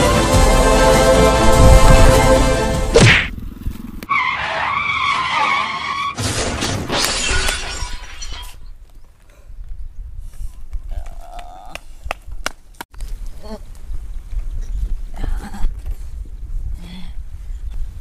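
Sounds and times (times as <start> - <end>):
music: 0.0 - 3.0
tyre skid squeal: 4.1 - 6.2
crash of breaking and shattering: 6.1 - 8.6.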